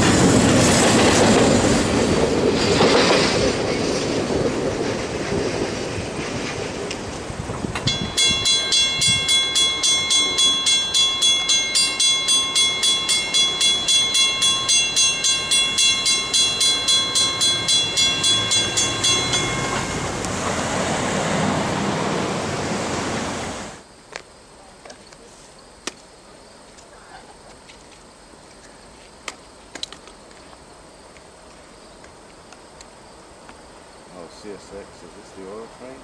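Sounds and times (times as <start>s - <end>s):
faint outdoor ambience: 0.0s - 36.0s
crossing warning bell ringing: 7.8s - 20.9s
vehicle driving past: 19.2s - 23.8s.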